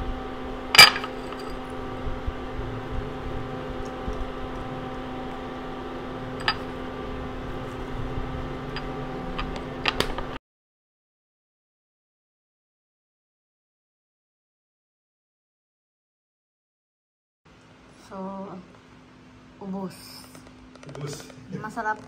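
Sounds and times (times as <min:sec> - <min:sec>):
machine hum: 0:00.0 - 0:10.4.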